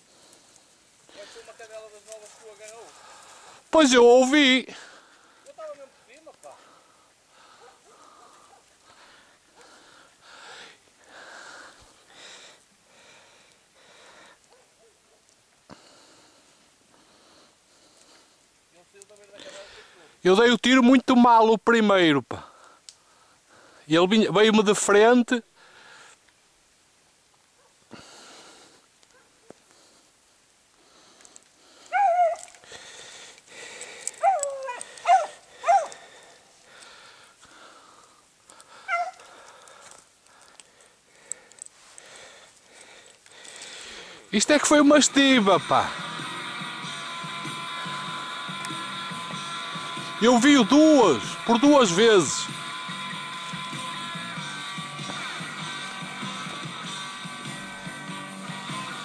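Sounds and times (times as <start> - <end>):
person breathing hard: 2.9 - 3.7, 4.7 - 5.5, 6.6 - 14.4, 15.7 - 18.5, 25.6 - 26.2, 27.9 - 28.9, 30.8 - 32.0, 32.6 - 44.3
dog yelping: 31.9 - 32.5, 34.2 - 36.0, 38.9 - 39.2.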